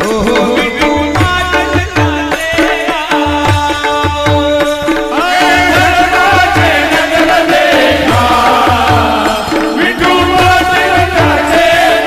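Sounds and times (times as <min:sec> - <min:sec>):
harmonium: 0:00.0 - 0:12.0
lead voice singing: 0:00.0 - 0:12.0.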